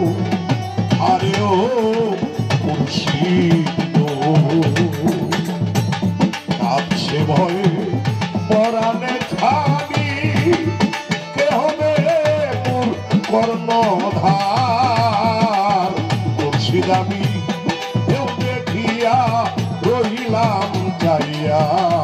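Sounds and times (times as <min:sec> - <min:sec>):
hand drums: 0:00.0 - 0:22.0
man singing with vibrato: 0:00.0 - 0:22.0.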